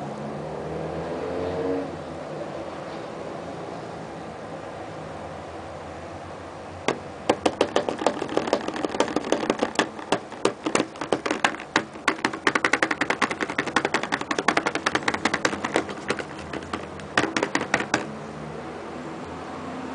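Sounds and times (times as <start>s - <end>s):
fingers tapping on fluid: 6.9s - 18.1s.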